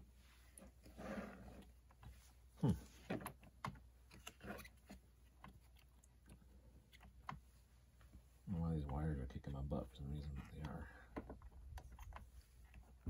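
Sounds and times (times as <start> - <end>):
plastic parts clicking and knocking: 3.0 - 7.5, 10.4 - 13.0.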